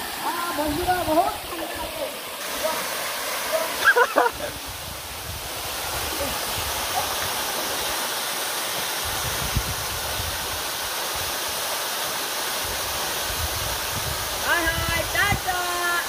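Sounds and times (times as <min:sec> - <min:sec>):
waterfall rushing into pool: 0:00.0 - 0:16.0.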